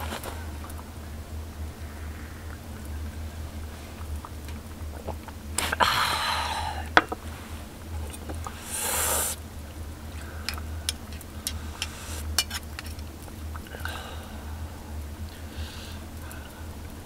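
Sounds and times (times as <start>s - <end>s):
metal spoon scraping in bowl: 11.4s - 13.0s.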